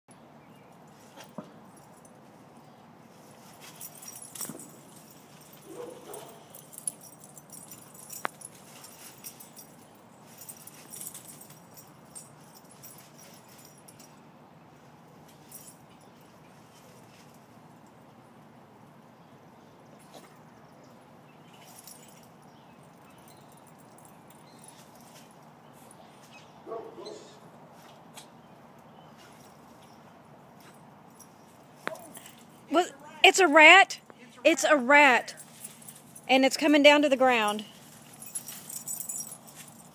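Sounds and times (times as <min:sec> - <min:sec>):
faint jingling: 0:00.5 - 0:18.4, 0:20.0 - 0:26.8, 0:28.4 - 0:39.9
dog yipping: 0:05.7 - 0:06.4, 0:26.7 - 0:27.4.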